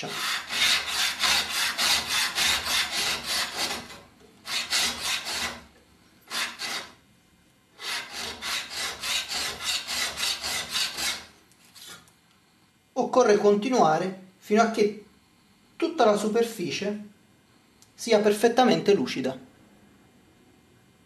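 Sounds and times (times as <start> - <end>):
scraper rasping along a file: 0.0 - 5.6, 6.3 - 7.0, 7.8 - 12.0.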